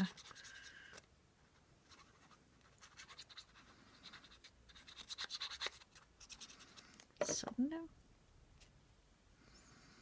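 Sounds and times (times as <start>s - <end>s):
scratching and rubbing on paper: 0.0s - 0.8s, 1.8s - 6.9s.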